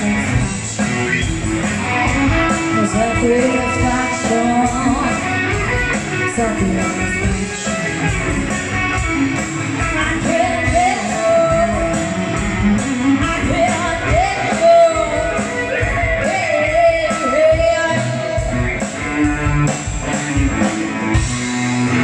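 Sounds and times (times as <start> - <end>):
electric guitar: 0.0 - 22.0
steady drum beat: 0.0 - 22.0
woman singing: 2.7 - 5.5, 6.2 - 7.7, 9.8 - 12.4, 13.2 - 18.5.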